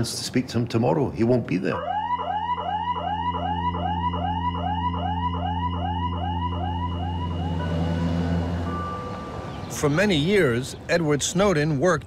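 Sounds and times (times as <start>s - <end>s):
siren-like warbling tone: 1.8s - 9.5s
low electronic drone: 1.8s - 9.8s.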